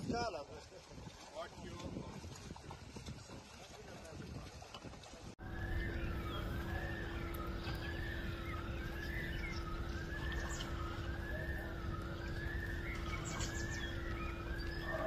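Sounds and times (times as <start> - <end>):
low hum and rumble: 5.4 - 15.0
siren wailing: 5.4 - 15.0.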